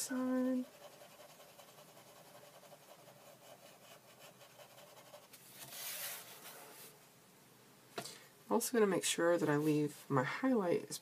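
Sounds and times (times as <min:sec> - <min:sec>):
pencil scratching on paper: 0:00.4 - 0:06.2.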